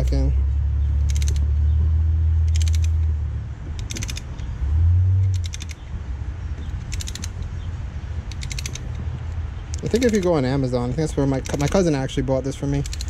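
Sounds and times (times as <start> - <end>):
low rumble: 0.0 - 11.5
ratcheting tool clicking: 1.0 - 1.5, 2.4 - 3.1, 3.7 - 4.5, 5.2 - 5.9, 6.6 - 7.6, 8.2 - 13.0.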